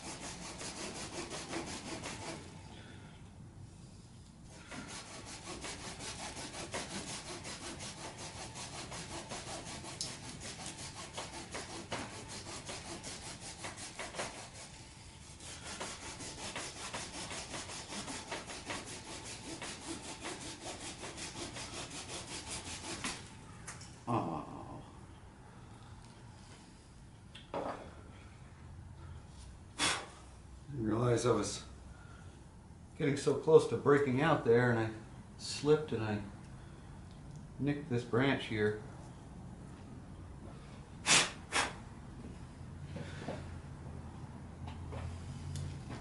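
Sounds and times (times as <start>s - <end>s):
hand saw cutting wood: 0.0s - 2.5s, 4.5s - 23.2s.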